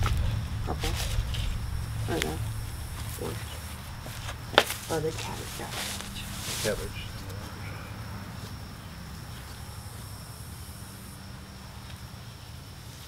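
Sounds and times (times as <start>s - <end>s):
hands rustling in potting soil: 0.0s - 7.7s
high insect drone: 0.0s - 13.0s
low steady hum: 0.0s - 13.0s.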